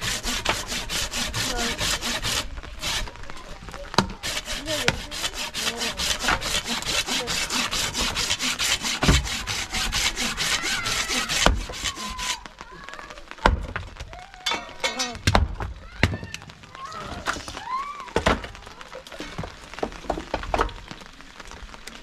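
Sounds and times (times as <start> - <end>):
fast rasping strokes: 0.0 - 3.1, 4.2 - 12.5
sharp knocks: 6.1 - 10.0.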